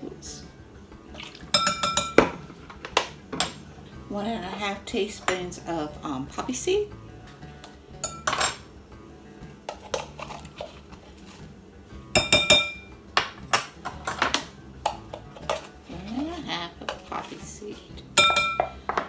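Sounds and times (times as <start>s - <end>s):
metal spoon clinking on containers: 8.0s - 8.6s, 18.2s - 19.0s.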